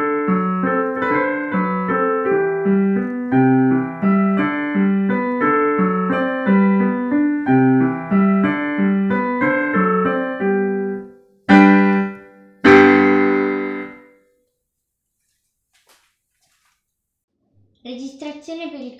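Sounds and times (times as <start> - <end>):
digital piano classical piece: 0.0 - 14.2.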